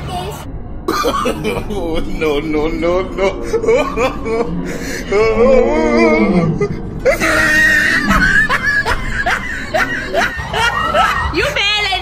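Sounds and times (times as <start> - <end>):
people laughing and shrieking: 3.2 - 12.0.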